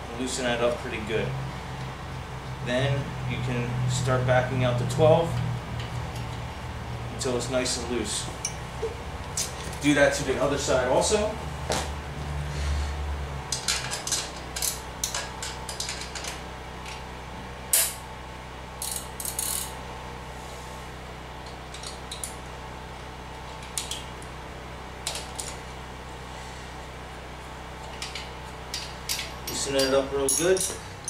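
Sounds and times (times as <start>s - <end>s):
wrenches clinking on metal nuts: 27.9s - 31.0s.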